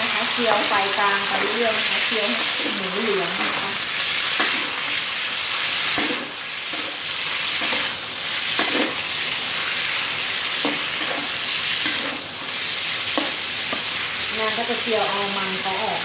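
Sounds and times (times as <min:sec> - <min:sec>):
meat sizzling in hot oil: 0:00.0 - 0:16.0.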